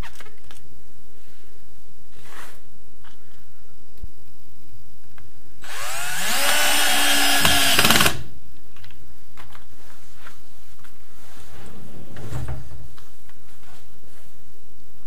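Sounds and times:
cordless drill driving screw: 5.6s - 8.2s.

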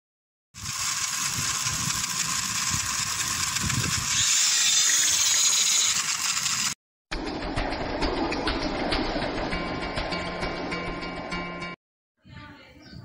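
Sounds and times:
small electric motors buzzing: 0.6s - 6.8s.

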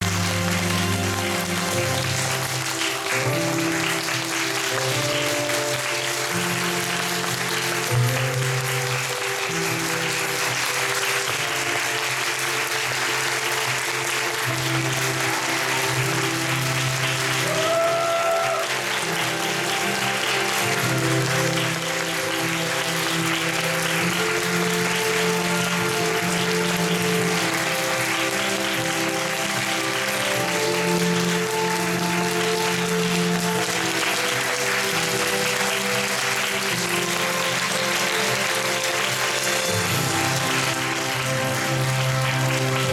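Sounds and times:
audience clapping: 0.0s - 42.9s.

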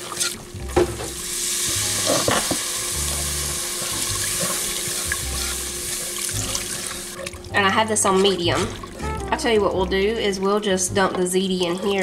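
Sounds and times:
roux sizzling in a pot: 0.0s - 9.0s.

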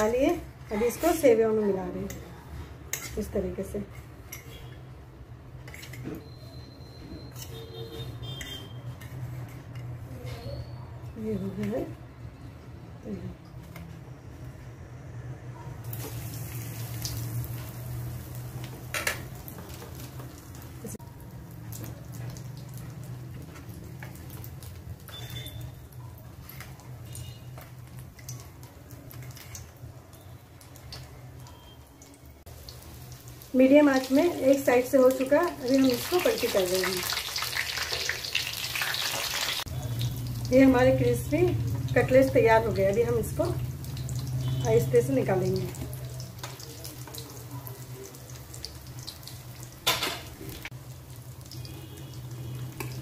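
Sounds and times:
oil sizzling with pops and crackles: 0.0s - 6.6s, 7.2s - 10.8s, 15.8s - 53.0s
metal spatula scraping pan: 2.9s - 4.7s.

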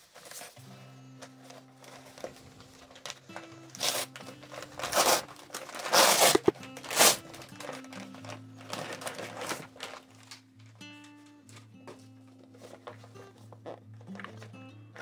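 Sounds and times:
paper mailer tearing and crinkling: 0.0s - 10.8s
quiet background music: 0.0s - 15.0s.

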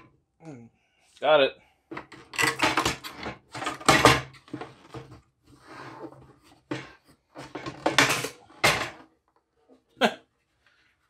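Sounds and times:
plastic parts knocking and rattling: 1.9s - 5.3s, 6.0s - 9.3s.

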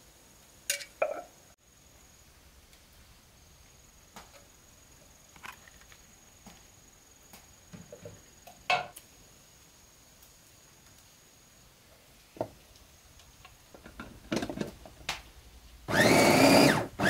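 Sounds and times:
kitchenware clattering on counter: 13.8s - 14.8s.

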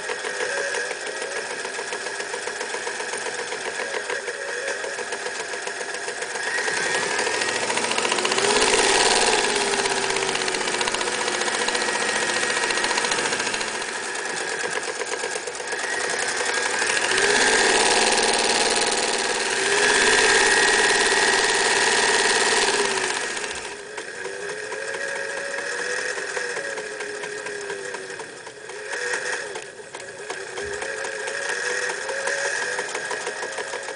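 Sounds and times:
electric sewing machine running: 0.0s - 33.9s.

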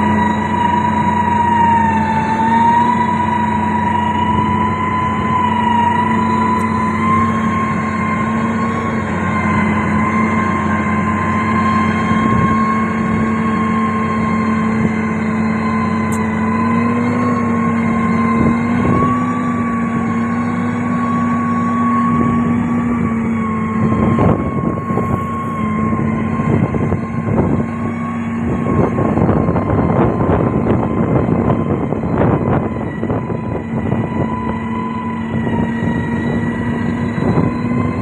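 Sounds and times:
diesel construction machine drone: 0.0s - 38.0s.

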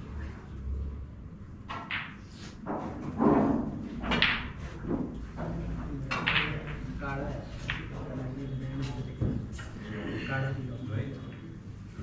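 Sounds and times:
snooker balls knocking: 1.7s - 6.9s, 7.5s - 8.2s.

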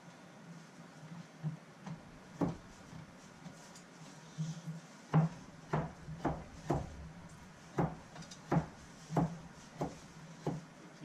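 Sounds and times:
knife chopping on wooden block: 2.4s - 2.7s, 5.1s - 10.6s.

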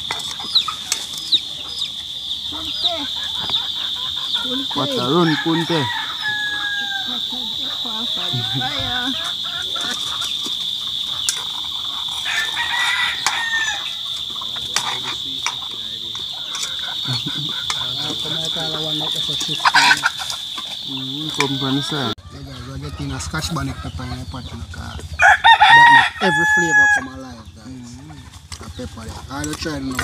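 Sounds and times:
chickens clucking: 0.0s - 30.0s
rooster crowing: 2.5s - 10.3s, 10.9s - 15.0s, 25.1s - 28.4s.

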